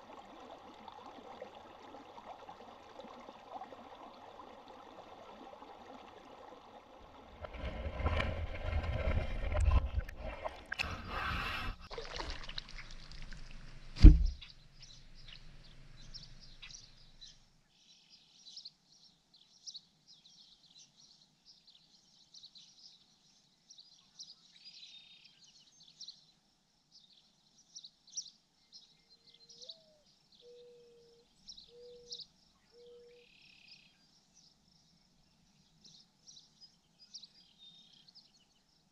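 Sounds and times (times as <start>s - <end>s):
underwater rumbling and sloshing: 0.0s - 14.4s
loud sharp thud: 14.0s - 14.4s.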